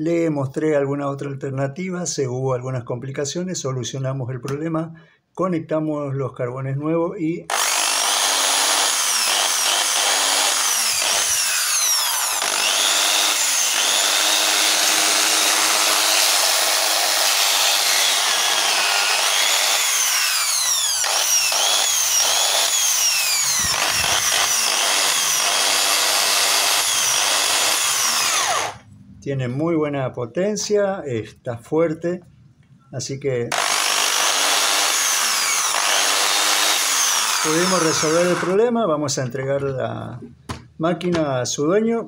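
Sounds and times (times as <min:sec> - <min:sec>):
electric drill motor whine: 0:07.5 - 0:28.8, 0:33.5 - 0:38.6.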